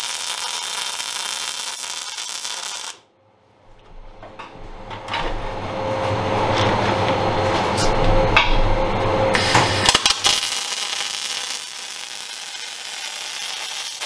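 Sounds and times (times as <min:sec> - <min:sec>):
welding arc crackling and hissing: 0:00.0 - 0:03.1, 0:09.3 - 0:14.0
low steady hum: 0:03.1 - 0:09.6.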